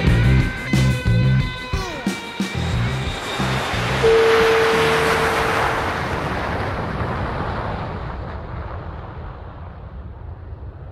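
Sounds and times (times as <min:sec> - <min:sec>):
rushing wind-like whoosh: 0:02.4 - 0:10.1
low rumble: 0:02.6 - 0:10.9
held note: 0:04.0 - 0:05.9.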